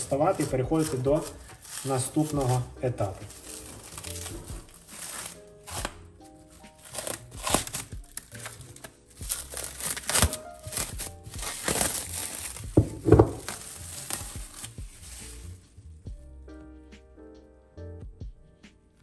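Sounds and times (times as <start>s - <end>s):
cling film crinkling: 0.0s - 15.7s
background music: 0.0s - 19.0s.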